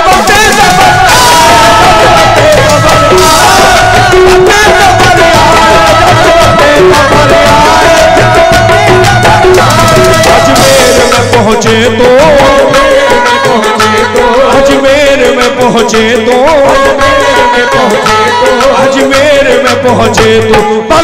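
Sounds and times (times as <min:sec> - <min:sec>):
hand drums: 0:00.0 - 0:21.0
harmonium: 0:00.0 - 0:21.0.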